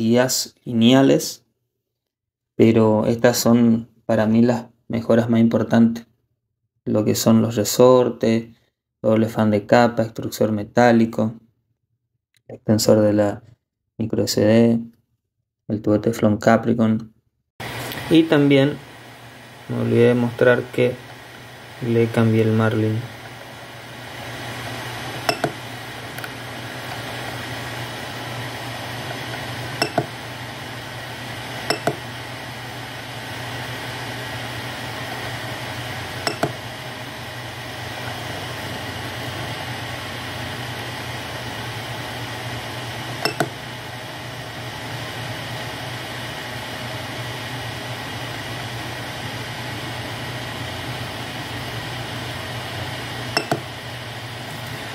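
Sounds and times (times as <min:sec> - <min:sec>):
cooling fans humming: 0:17.6 - 0:54.9.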